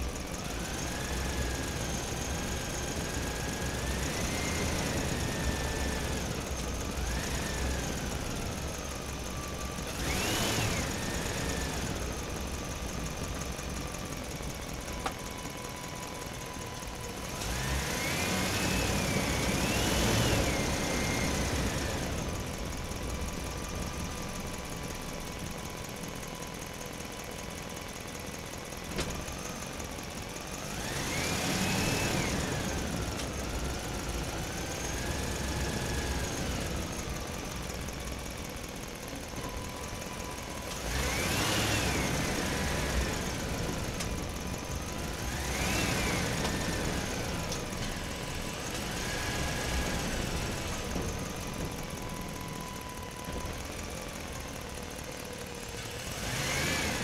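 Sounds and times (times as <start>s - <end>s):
small electric motors whining: 0.0s - 27.5s, 29.0s - 57.0s.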